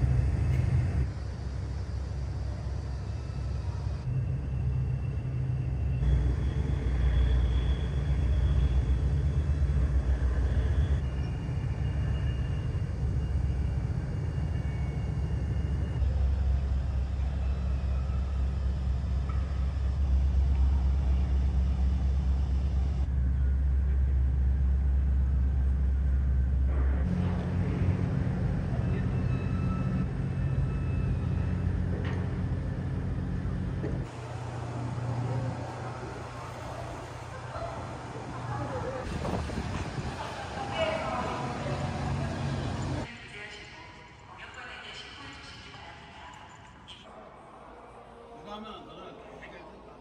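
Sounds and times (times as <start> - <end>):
low harbour rumble: 0.0 - 43.1
faint high whine: 0.0 - 43.4.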